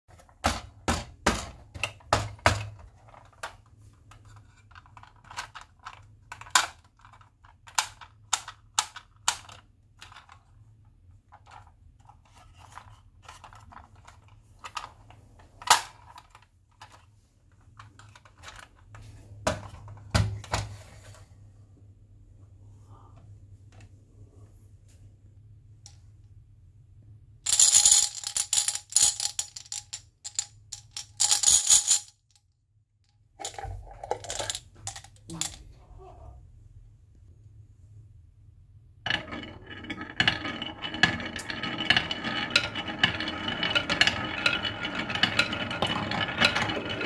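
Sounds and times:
plastic toy clicks and knocks: 4.7 - 10.4.

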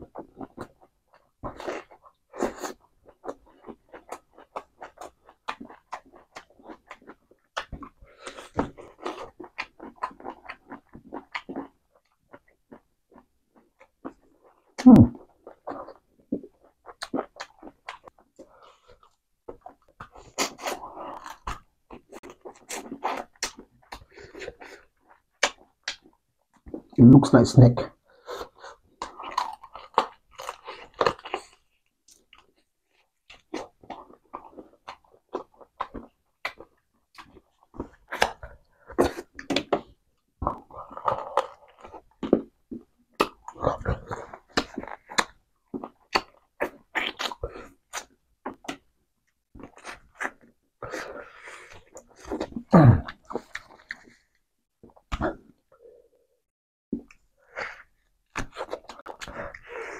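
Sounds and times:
person biting and chewing chicken: 15.2 - 26.1, 28.2 - 31.6, 33.3 - 48.8, 49.6 - 54.2, 57.0 - 59.9
wet mouth sounds: 49.6 - 54.2, 54.8 - 56.0.

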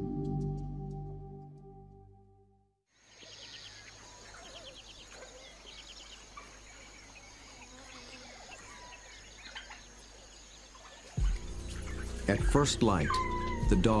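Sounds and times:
small birds chirping and trilling: 3.0 - 14.0
high insect drone: 5.8 - 9.3.

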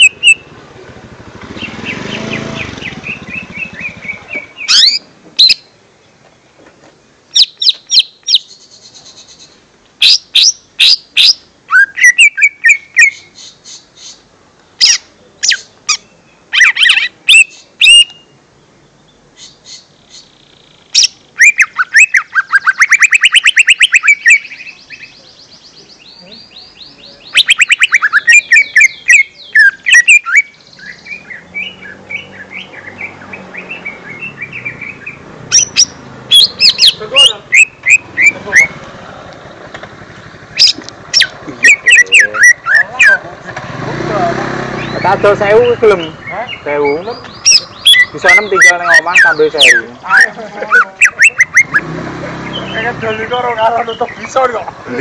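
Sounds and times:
bird whistled chirps: 0.0 - 0.5, 1.6 - 5.7, 7.4 - 14.2, 14.8 - 18.3, 21.0 - 38.8, 40.6 - 43.2, 46.1 - 51.9
bird chattering: 0.0 - 0.6, 1.5 - 5.7, 7.3 - 18.3, 19.4 - 38.8, 39.5 - 54.8
bird rattling trills: 40.2 - 42.9.

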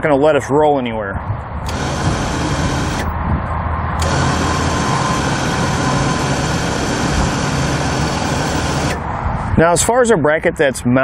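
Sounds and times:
electric winch motor whining: 1.7 - 3.1, 4.0 - 9.0
steady low hum: 1.7 - 3.3, 4.0 - 9.6.

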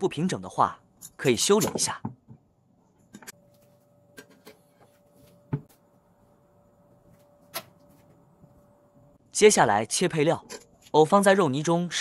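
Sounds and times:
faint steady hum: 2.3 - 9.4.

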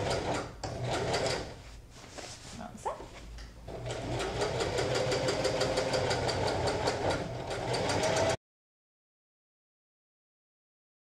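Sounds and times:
sewing machine stitching: 0.0 - 1.6, 3.7 - 8.4.

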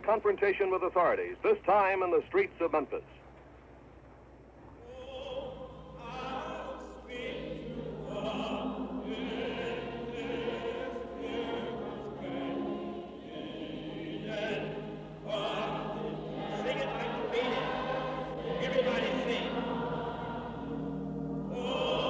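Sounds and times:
choir singing slowly: 4.8 - 22.0.

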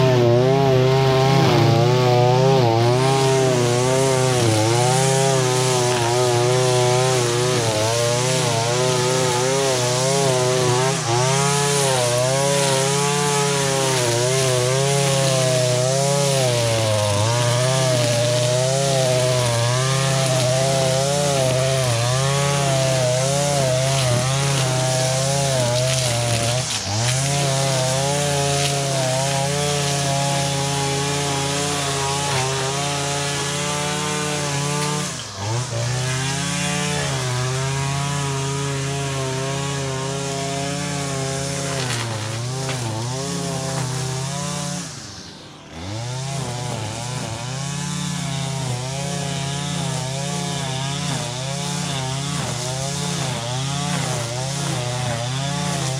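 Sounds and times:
string trimmer engine running: 0.0 - 55.9.

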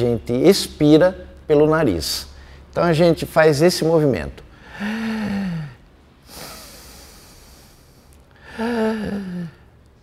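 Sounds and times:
man breathing in and out: 4.5 - 9.8.

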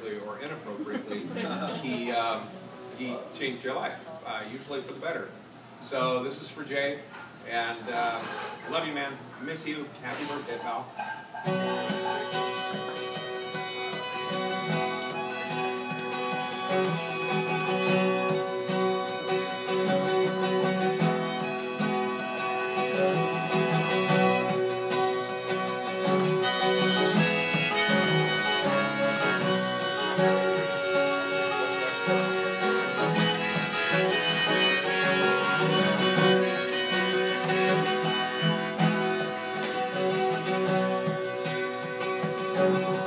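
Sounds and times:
strummed acoustic guitar: 0.0 - 4.0, 4.7 - 43.0
harmonica long notes: 11.4 - 43.0.

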